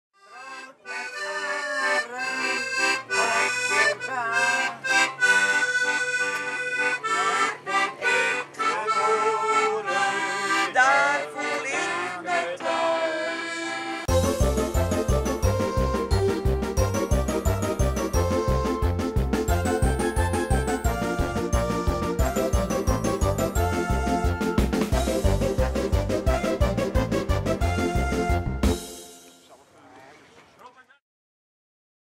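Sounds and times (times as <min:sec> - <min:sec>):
instrumental music with held notes: 0:00.2 - 0:29.6
music with steady beat: 0:14.1 - 0:29.4.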